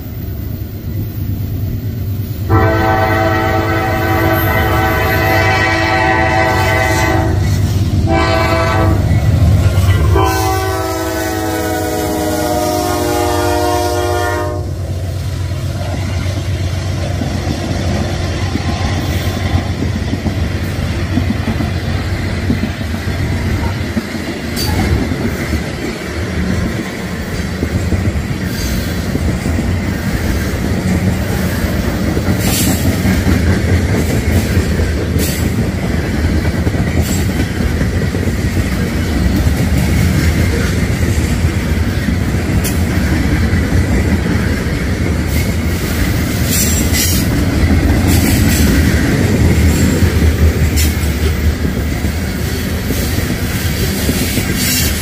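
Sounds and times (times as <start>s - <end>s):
train rumbling past: 0.0s - 55.0s
train horn blasts: 2.5s - 9.2s, 9.8s - 14.9s
wheels clicking over rail joints: 15.4s - 55.0s.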